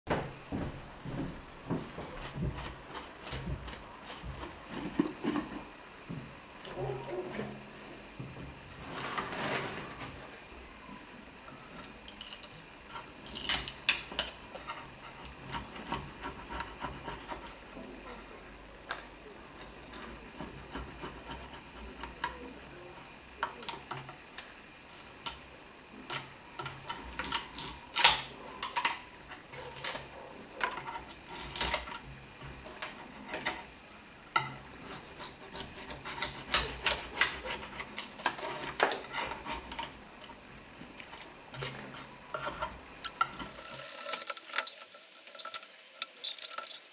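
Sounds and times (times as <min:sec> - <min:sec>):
knife scraping wood veneer: 0:02.2 - 0:05.7, 0:12.9 - 0:17.6, 0:19.9 - 0:22.5, 0:26.6 - 0:33.7, 0:34.8 - 0:40.0, 0:41.6 - 0:44.1.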